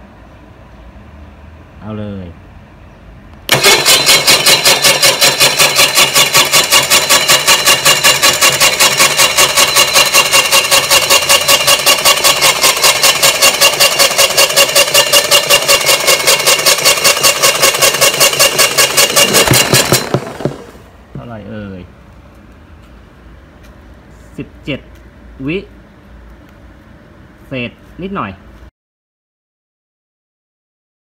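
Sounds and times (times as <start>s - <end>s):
electric winch motor whine: 3.5s - 21.0s.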